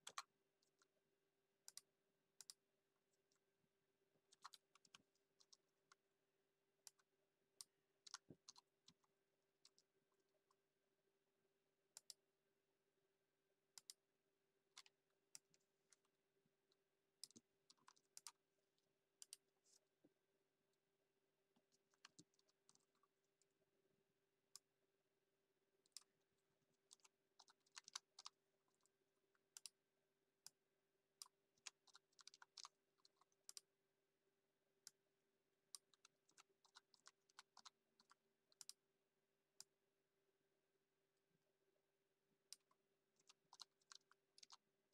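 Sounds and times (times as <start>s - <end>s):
keyboard typing: 43.2s - 44.6s.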